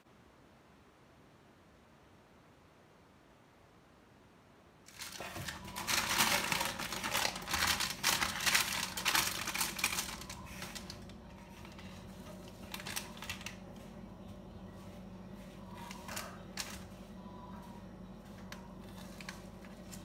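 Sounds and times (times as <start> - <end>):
parchment paper crinkling: 4.9 - 20.0.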